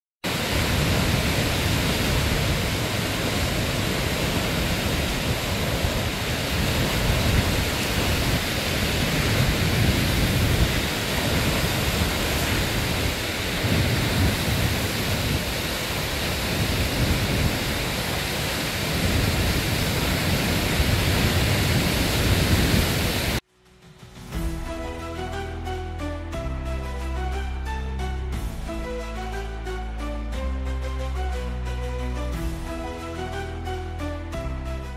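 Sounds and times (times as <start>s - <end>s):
gusty wind on microphone: 0.2s - 23.4s
surf washing against seawall: 0.3s - 23.4s.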